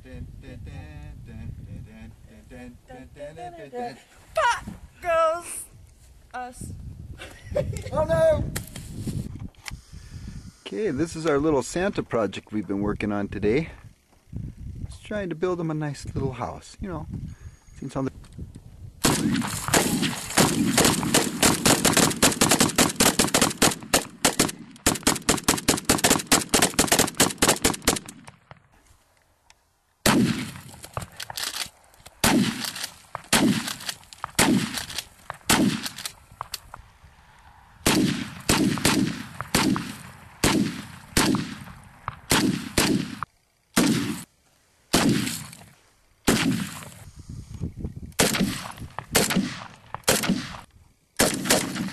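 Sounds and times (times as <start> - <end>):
gunshots: 19.0 - 28.4, 30.0 - 31.6, 32.2 - 36.1, 37.8 - 44.3, 44.9 - 45.6, 46.2 - 46.9, 48.2 - 51.9.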